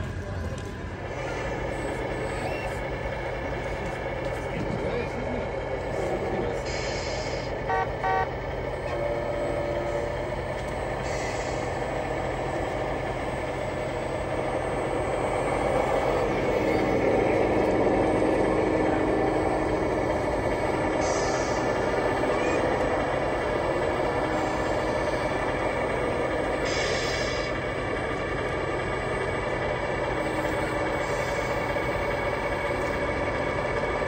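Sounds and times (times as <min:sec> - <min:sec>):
air brake hisses: 0:06.6 - 0:07.5, 0:11.0 - 0:11.8, 0:21.0 - 0:21.8, 0:26.6 - 0:27.6
truck horn toots: 0:07.6 - 0:08.3.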